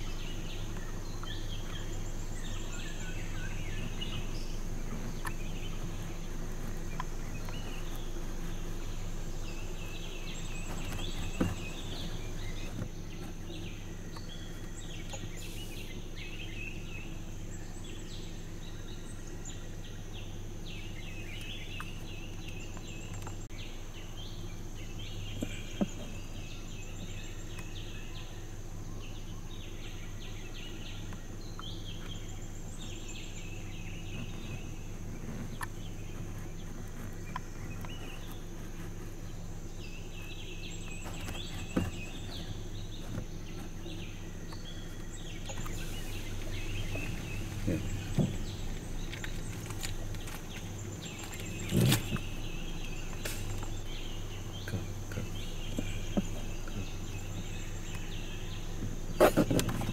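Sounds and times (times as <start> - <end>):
birds chirping: 0.0 - 59.9
high insect drone: 0.0 - 59.9
low steady hum: 0.0 - 59.9.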